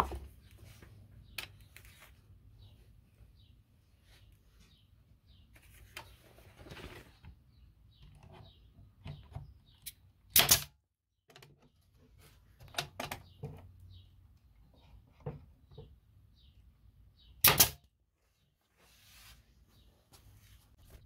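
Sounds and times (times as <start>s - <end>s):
brad nailer firing: 10.3s - 10.7s, 17.4s - 17.8s.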